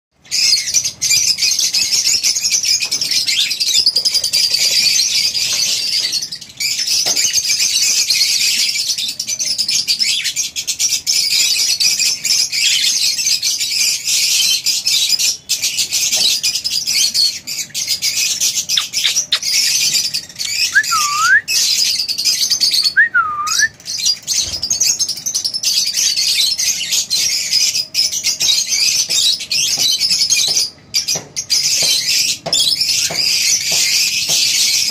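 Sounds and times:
birds chattering and chirping: 0.2 - 34.9
bird whistles dipping and rising: 20.5 - 21.6, 22.8 - 23.7.

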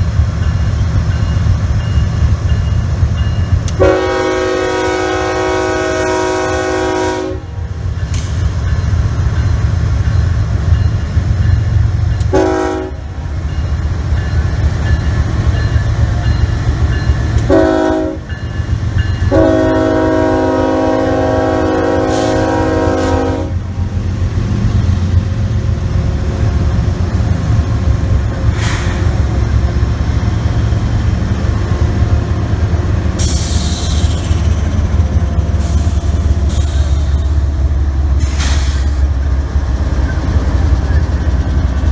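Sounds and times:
diesel locomotives rumbling past: 0.0 - 41.9
train air horn blasts: 3.7 - 7.7, 12.3 - 13.1, 17.4 - 18.3, 19.2 - 23.7.

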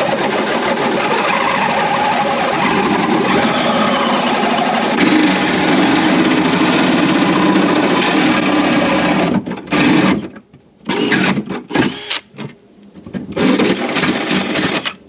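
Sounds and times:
power drill cutting through aluminum: 0.8 - 12.3.

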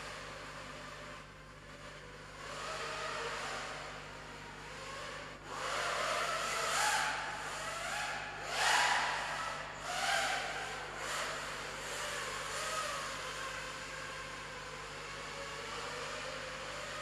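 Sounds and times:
quadcopter motors whining: 4.6 - 17.0.

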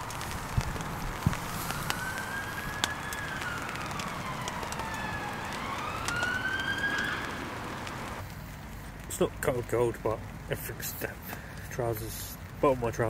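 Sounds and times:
siren wailing: 0.0 - 8.2
rain hissing: 0.0 - 13.0
sharp drip clicks: 0.0 - 13.0.

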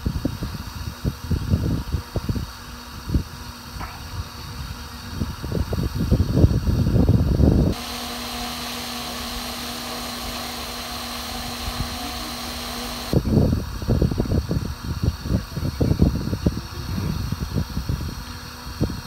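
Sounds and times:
rc helicopter whine: 7.4 - 13.6.

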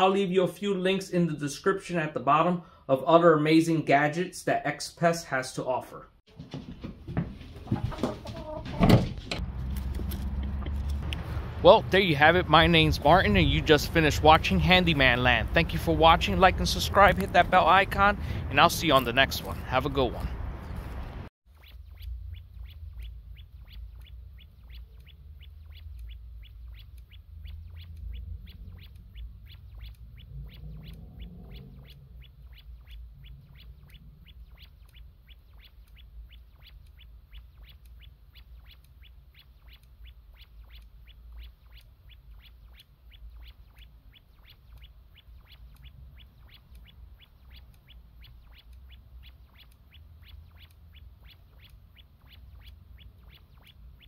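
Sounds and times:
low hum: 20.3 - 54.0
high-pitched ticking: 21.5 - 54.0.

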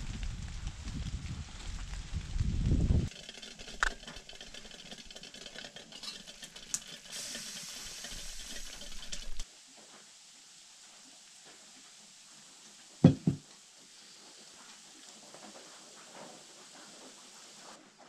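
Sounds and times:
water boiling and hissing: 0.0 - 18.0
small clicks and rattles: 3.0 - 9.4.

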